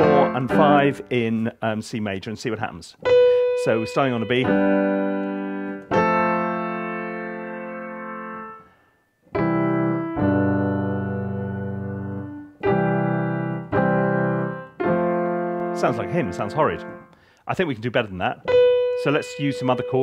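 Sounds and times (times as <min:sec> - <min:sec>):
piano chords and melody: 0:00.0 - 0:01.4, 0:03.0 - 0:17.2, 0:18.4 - 0:20.0.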